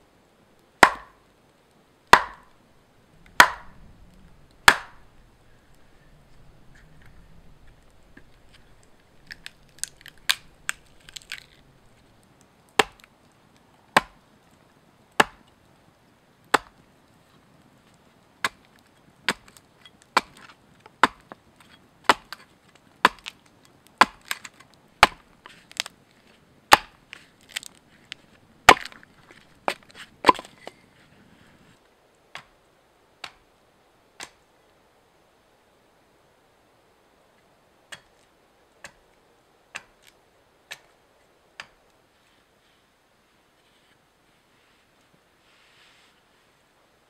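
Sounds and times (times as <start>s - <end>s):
axe striking log: 0.8s - 1.2s, 2.1s - 2.6s, 3.3s - 3.8s, 4.6s - 5.0s, 12.8s - 13.0s, 14.0s - 14.2s, 15.2s - 15.4s, 16.5s - 16.8s, 19.3s - 19.6s, 20.2s - 21.2s, 22.1s - 22.4s, 23.0s - 23.4s, 24.0s - 25.3s, 26.7s - 27.0s, 28.7s - 29.0s, 29.7s - 30.5s.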